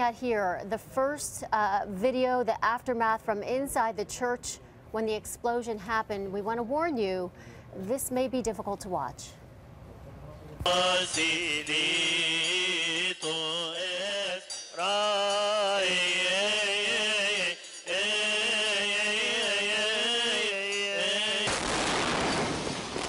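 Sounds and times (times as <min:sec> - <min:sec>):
men chanting a hymn: 0:10.7 - 0:21.5.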